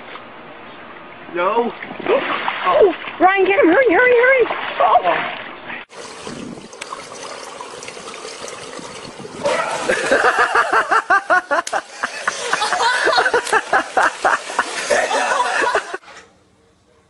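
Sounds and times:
person laughing hard: 0:09.5 - 0:16.0.

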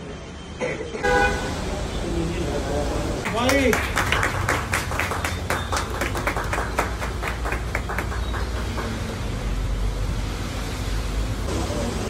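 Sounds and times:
people clapping: 0:03.2 - 0:09.4.

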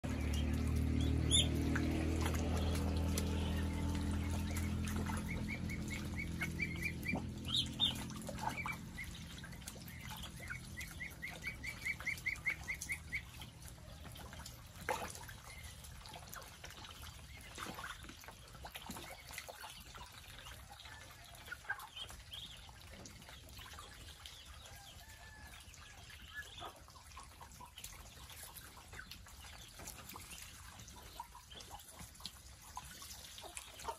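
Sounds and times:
small water splashes: 0:00.0 - 0:33.9
low droning hum: 0:00.1 - 0:14.6
ducklings chirping: 0:00.1 - 0:20.6, 0:21.6 - 0:24.6.

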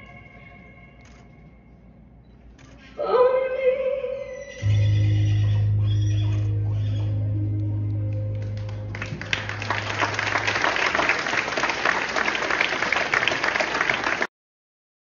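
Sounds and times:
music held low note: 0:04.6 - 0:10.5
audience applause: 0:08.1 - 0:14.3.

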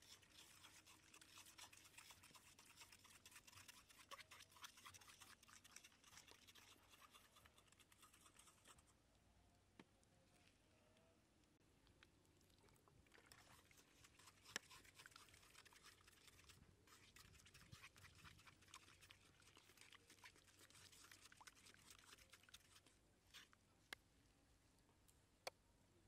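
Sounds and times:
stick crushing sauce in stone mortar: 0:13.4 - 0:23.4.

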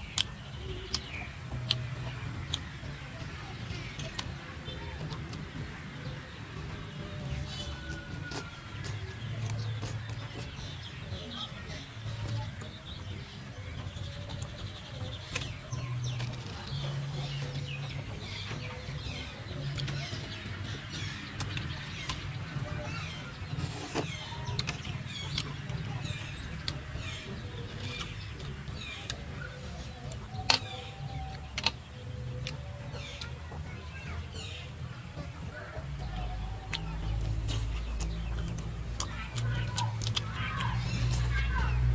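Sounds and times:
birds chirping: 0:00.0 - 0:41.9
person chewing: 0:36.7 - 0:41.4.

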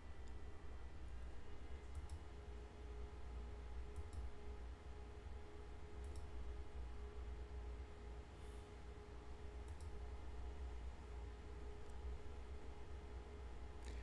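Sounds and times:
low steady hum: 0:00.0 - 0:14.0
faint computer mouse clicks: 0:01.9 - 0:02.3, 0:09.6 - 0:10.0.

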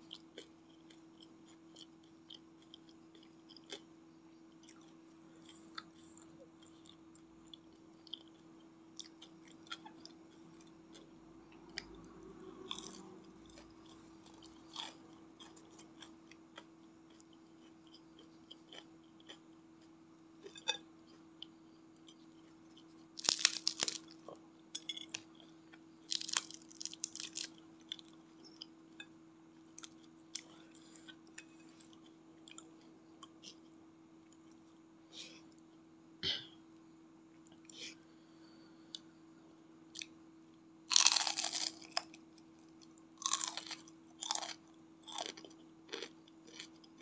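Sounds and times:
soft chewing with mouth clicks: 0:00.0 - 0:35.8, 0:40.9 - 0:47.0
faint low hum: 0:00.0 - 0:47.0
crunchy bites: 0:23.2 - 0:24.2, 0:26.1 - 0:28.1, 0:40.9 - 0:42.2, 0:43.2 - 0:46.8.

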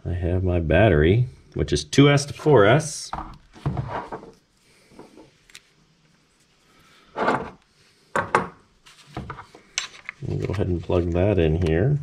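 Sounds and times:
plastic parts clacking: 0:09.1 - 0:10.7.

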